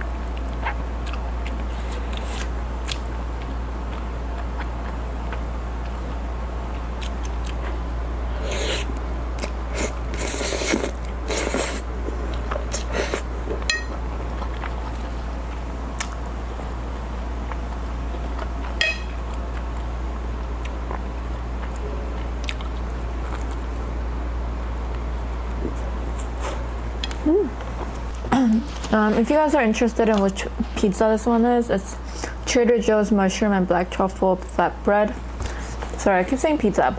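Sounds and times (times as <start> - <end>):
chewing: 0.3 - 6.0, 13.9 - 16.2, 20.6 - 23.7
slurping noodles: 9.7 - 11.9.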